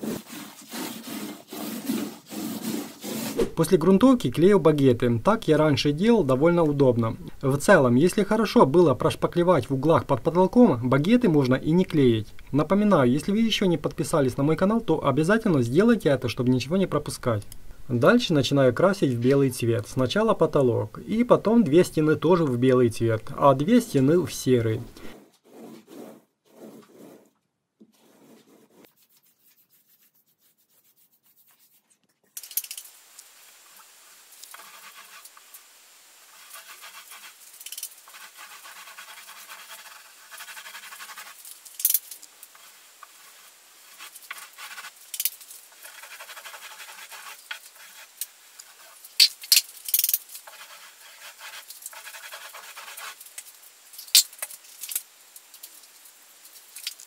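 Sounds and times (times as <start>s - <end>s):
paint roller rubbing on ceiling: 0.0s - 3.5s, 25.0s - 31.9s, 33.8s - 35.5s, 36.2s - 41.6s, 42.4s - 49.2s, 50.3s - 53.4s.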